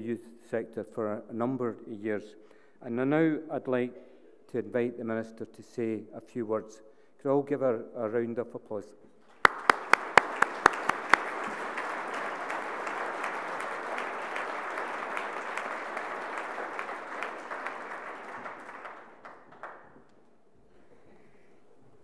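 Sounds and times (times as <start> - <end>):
audience applauding: 9.3 - 20.1
loud claps near microphone: 9.3 - 20.3.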